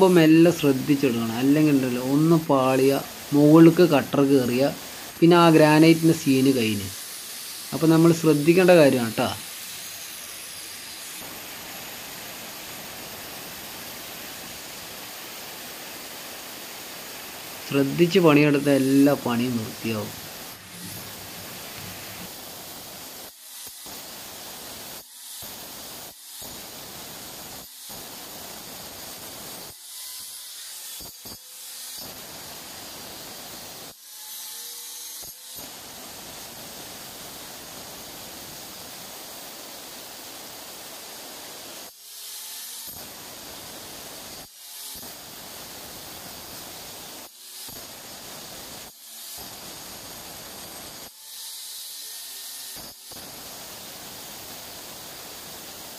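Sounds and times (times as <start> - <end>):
angle grinder grinding stone: 0.0 - 14.8, 17.6 - 22.4, 49.0 - 53.1.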